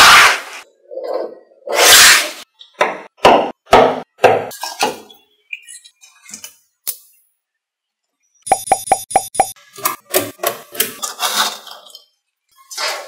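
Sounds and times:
magnetic balls clacking: 0:08.5 - 0:09.6.

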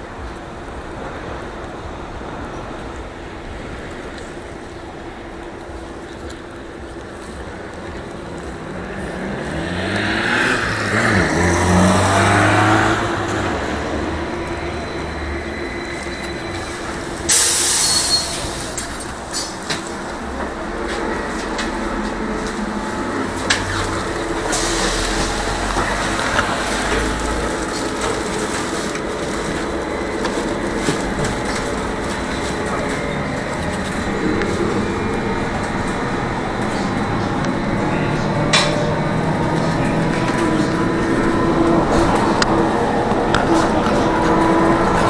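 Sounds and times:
trolleybus motor hum: 0:00.0 - 0:45.0
car driving past: 0:08.3 - 0:19.3, 0:19.9 - 0:45.0.

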